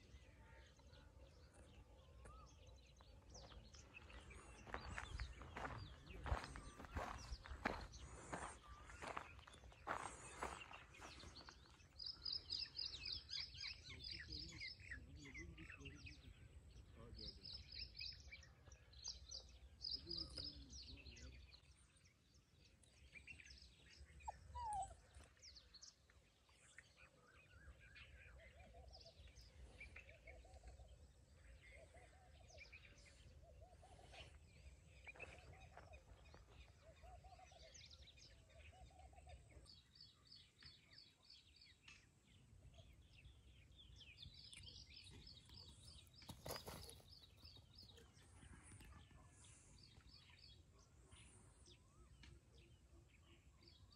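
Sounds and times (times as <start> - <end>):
small birds chirping: 0.0 - 53.9.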